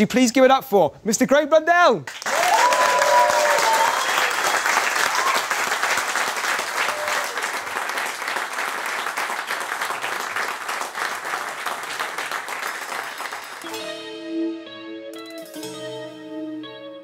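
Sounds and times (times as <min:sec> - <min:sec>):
crowd applauding: 0:02.1 - 0:13.9.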